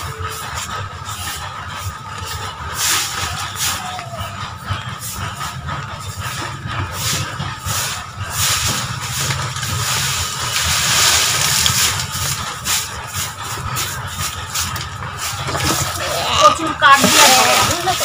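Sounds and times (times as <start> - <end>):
steady low rumble: 0.0 - 18.0
broom sweeping dry leaves: 2.8 - 3.9, 7.0 - 16.1, 16.9 - 18.0.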